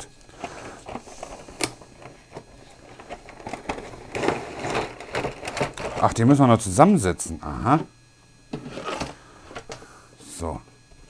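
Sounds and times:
plastic packaging rustling: 0:00.0 - 0:06.2
cardboard tray sliding out: 0:08.6 - 0:09.2.

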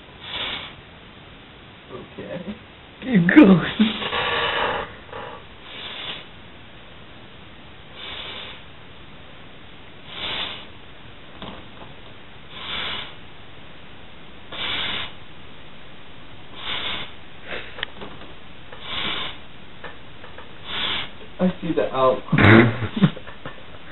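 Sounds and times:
heavy breathing through nose: 0:00.1 - 0:00.8, 0:03.6 - 0:06.4, 0:07.9 - 0:08.7, 0:10.0 - 0:10.8, 0:12.5 - 0:13.2, 0:14.5 - 0:15.2, 0:16.5 - 0:17.9, 0:18.7 - 0:19.5, 0:20.5 - 0:21.2.

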